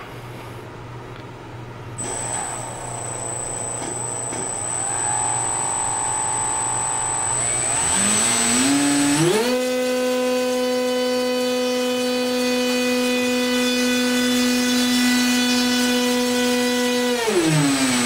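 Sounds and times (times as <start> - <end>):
electric motor whine: 2.0 - 16.2.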